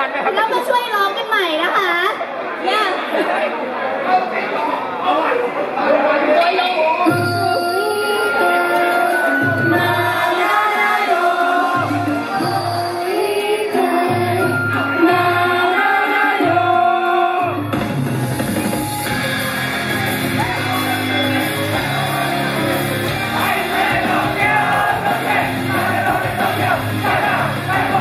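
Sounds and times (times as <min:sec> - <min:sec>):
sped-up pop song over sound system: 0:07.1 - 0:28.0
crowd shouting along: 0:19.0 - 0:28.0.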